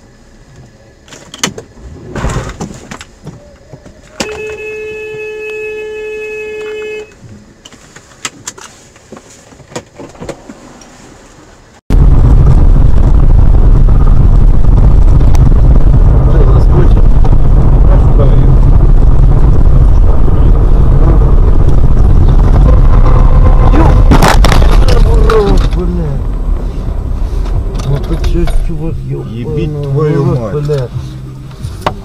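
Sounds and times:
car driving rushing noise: 1.4s - 3.2s, 7.2s - 32.0s
car horn held: 4.1s - 7.2s
wind on microphone: 11.9s - 27.8s.

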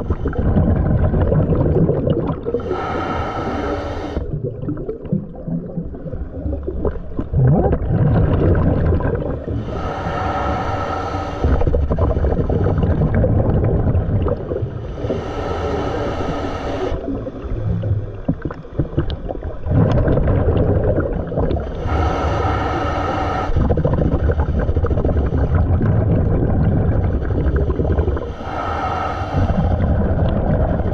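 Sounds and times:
exhaled bubbles gurgling: 0.0s - 30.9s
regulator hissing inhale: 2.6s - 4.3s, 9.5s - 13.0s, 14.8s - 17.2s, 21.7s - 23.8s, 27.4s - 30.0s.

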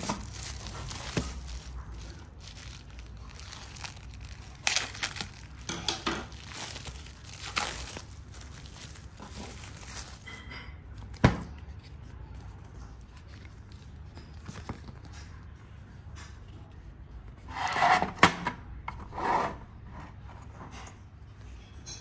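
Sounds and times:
plastic scraping and rubbing: 0.0s - 10.4s.

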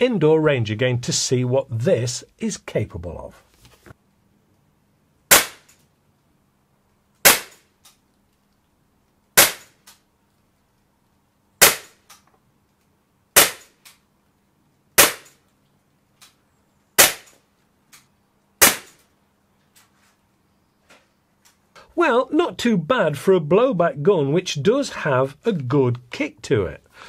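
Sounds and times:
air pistol shots: 5.3s - 5.8s, 7.2s - 7.7s, 9.4s - 9.8s, 11.6s - 12.0s, 13.4s - 13.8s, 15.0s - 15.4s, 17.0s - 17.4s, 18.6s - 19.0s.

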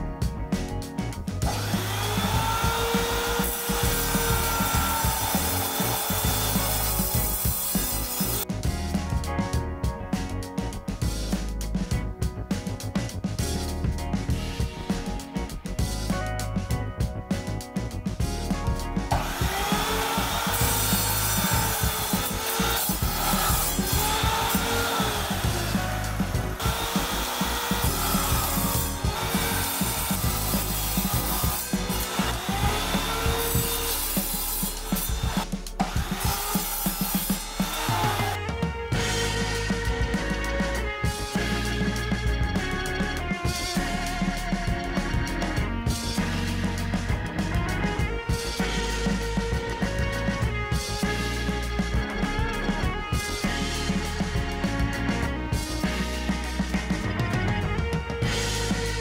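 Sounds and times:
background music: 0.0s - 59.0s
power saw cutting steel: 1.4s - 8.5s, 19.1s - 39.9s.

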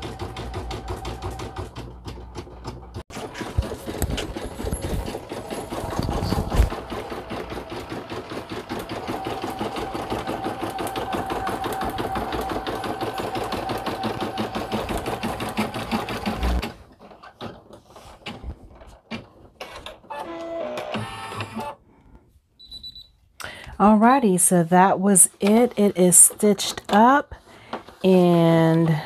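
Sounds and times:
embroidery machine stitching: 0.0s - 21.8s.

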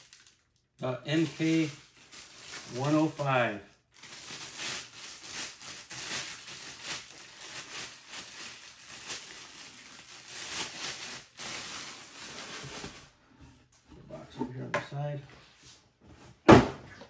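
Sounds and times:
plastic bag crinkling: 0.0s - 13.2s.

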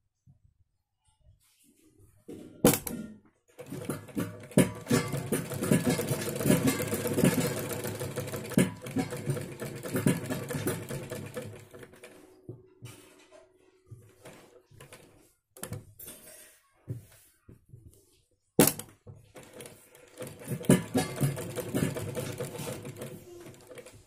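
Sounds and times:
sewing machine stitching: 3.6s - 12.3s, 19.4s - 24.0s.

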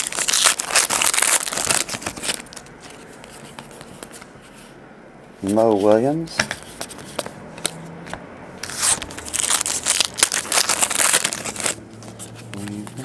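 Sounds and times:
foil wrapper tearing and crinkling: 0.0s - 2.7s, 8.6s - 11.8s.

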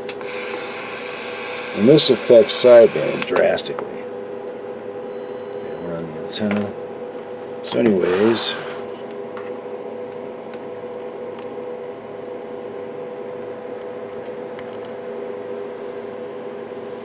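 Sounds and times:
electrical hum: 0.0s - 17.0s
even hiss: 0.1s - 3.7s.

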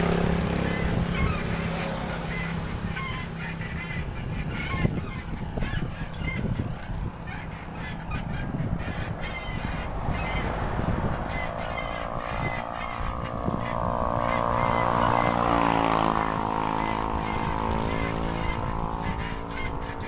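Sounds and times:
bicycle squeaking: 0.0s - 20.0s
wind rumble on microphone: 0.0s - 20.0s.

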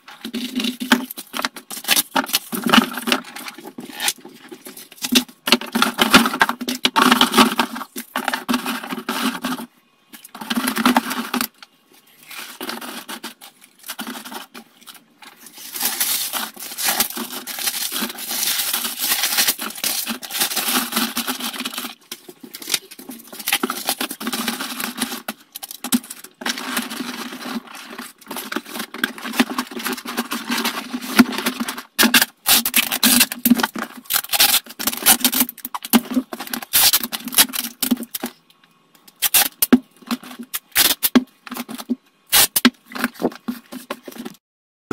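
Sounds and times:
paper and foil rustling: 10.3s - 38.2s.

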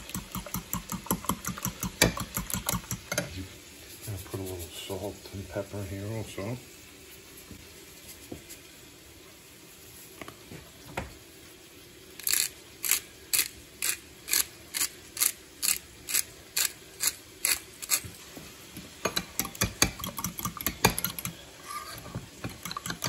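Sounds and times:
spoon beating eggs in bowl: 0.0s - 3.4s, 19.0s - 23.0s
pepper mill grinding: 12.2s - 18.1s, 19.0s - 23.0s.

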